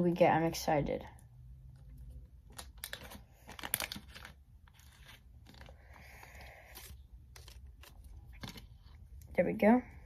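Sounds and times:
foil pack crinkling and tearing: 2.4s - 8.9s.

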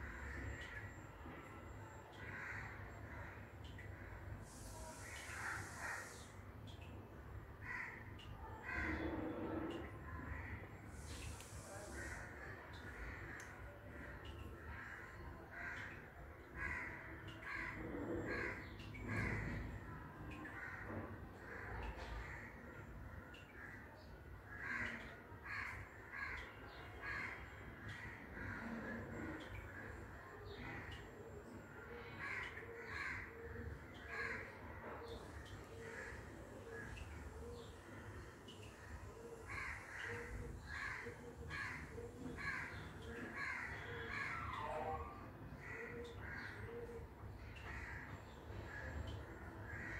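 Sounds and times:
crow cawing: 2.2s - 3.3s, 7.6s - 9.2s, 14.2s - 19.8s, 24.5s - 29.1s, 32.2s - 37.7s, 39.2s - 47.0s.

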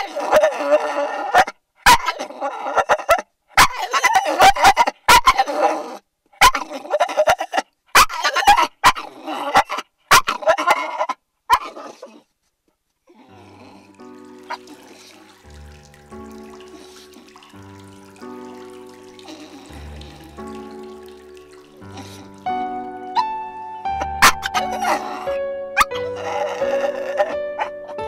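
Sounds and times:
dog whining and grumbling: 0.0s - 3.2s, 3.8s - 7.6s, 8.2s - 12.3s, 24.2s - 27.8s
quiet music: 13.3s - 28.0s.

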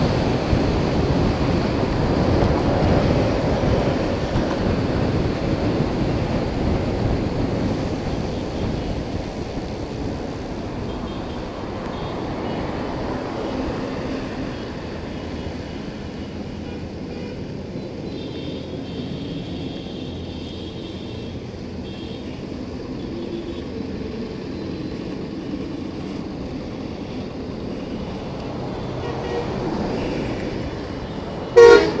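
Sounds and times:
wind rushing over microphone: 0.0s - 16.1s
motorcycle engine and road noise: 0.0s - 32.0s.

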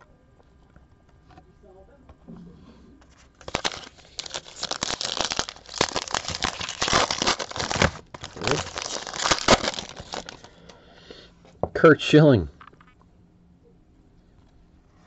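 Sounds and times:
wrapper crinkling and tearing: 3.4s - 10.6s.

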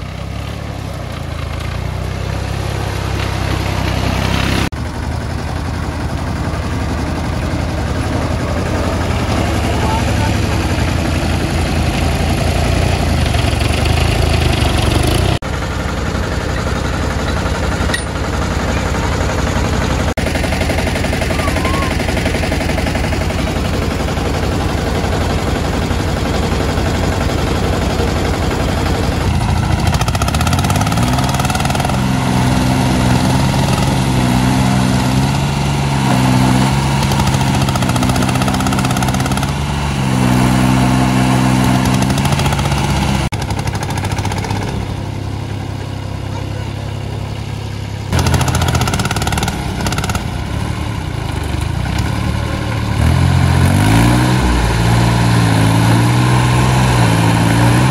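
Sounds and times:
small diesel tractor engines running: 0.0s - 57.9s
tractor engine revving under load: 0.0s - 57.9s.

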